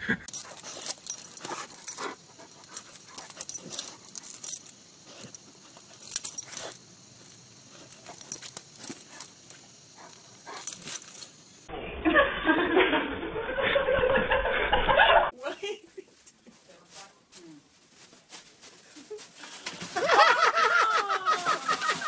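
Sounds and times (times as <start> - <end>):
dog sniffing: 0.4 - 4.2.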